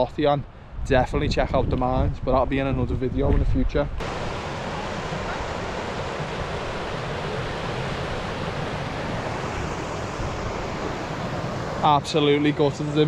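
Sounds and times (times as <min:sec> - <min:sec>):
river rushing over rocks: 0:04.0 - 0:13.0.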